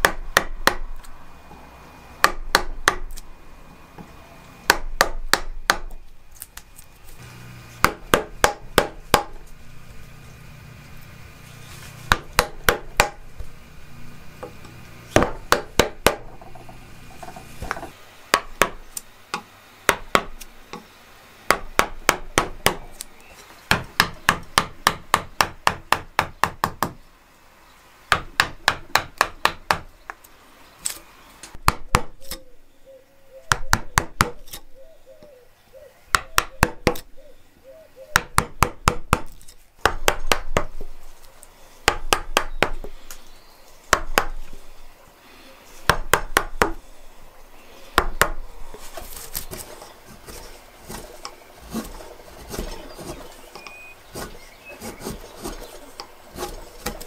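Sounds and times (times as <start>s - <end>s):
mallet striking chisel into wood: 4.7s - 5.9s, 7.8s - 9.4s, 12.1s - 13.2s, 15.2s - 20.8s, 21.5s - 22.8s, 23.7s - 27.0s, 28.1s - 29.9s, 36.1s - 37.0s, 38.2s - 40.7s, 41.8s - 43.0s, 45.9s - 46.8s.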